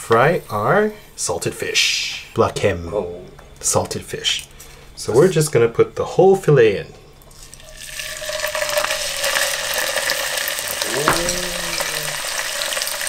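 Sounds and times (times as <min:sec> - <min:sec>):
fish deep-frying in oil: 0:07.3 - 0:13.0.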